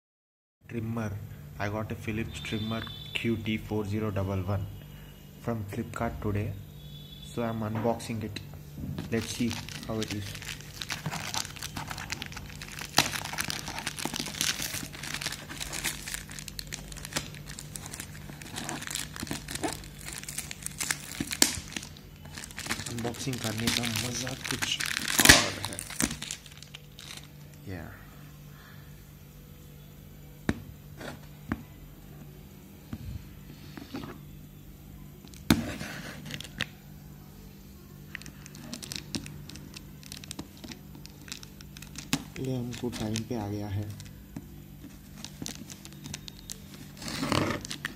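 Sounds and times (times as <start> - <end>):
steady low hum: 0.6 - 47.9
packing pouch crinkling: 9.1 - 27.5, 38.1 - 44.2, 44.8 - 47.9.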